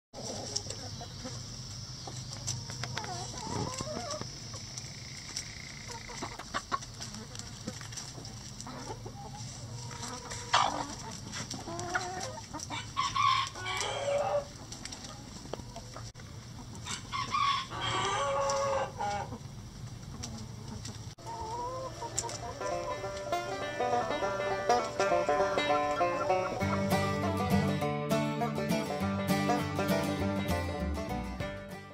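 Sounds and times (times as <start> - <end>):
long drawn-out chicken calls: 0.2 - 7.7, 8.6 - 27.4
chickens clucking: 0.2 - 31.9
chicken squawk: 8.7 - 14.6, 16.8 - 19.4, 20.2 - 26.9.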